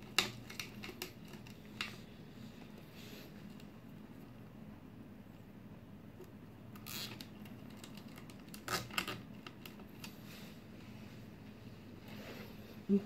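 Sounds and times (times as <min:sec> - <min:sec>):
sharp clicks and scrapes: 0:00.0 - 0:02.7
cable sleeve rustling: 0:06.8 - 0:11.3.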